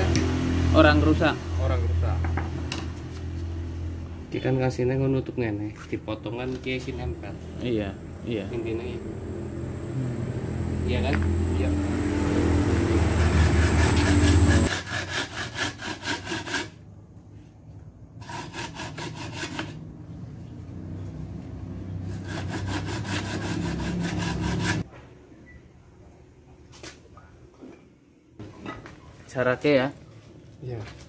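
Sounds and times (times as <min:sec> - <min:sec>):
hand saw cutting bamboo: 0:13.0 - 0:16.8, 0:18.2 - 0:19.8, 0:22.1 - 0:24.8.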